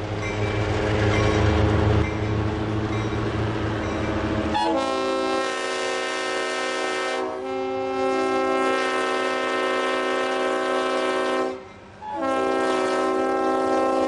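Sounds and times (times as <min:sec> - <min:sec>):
diesel locomotive engine running: 0:00.0 - 0:14.0
locomotive air horn chord: 0:04.5 - 0:14.0.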